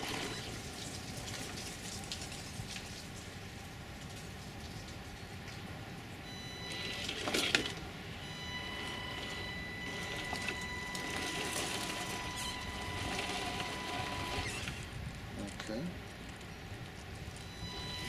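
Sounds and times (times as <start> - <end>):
high electric motor whine: 0.0 - 0.7, 6.2 - 15.4, 17.2 - 18.0.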